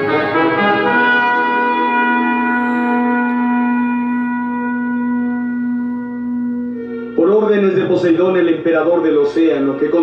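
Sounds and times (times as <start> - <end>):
held wind instrument note: 0.0 - 8.0
brass chord: 0.0 - 10.0.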